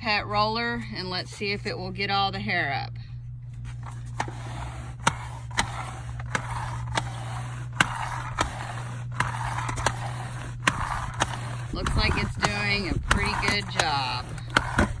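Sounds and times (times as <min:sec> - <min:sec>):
roller scraping over seat: 0:03.5 - 0:15.0
roller clicking: 0:03.7 - 0:15.0.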